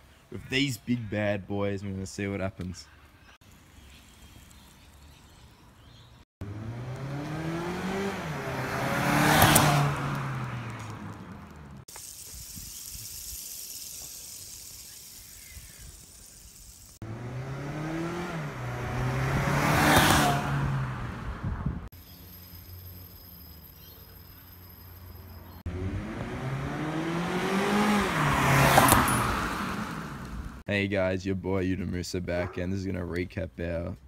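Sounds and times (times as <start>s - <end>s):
car engine passing: 6.4s - 11.9s, 17.0s - 21.9s, 25.6s - 30.6s.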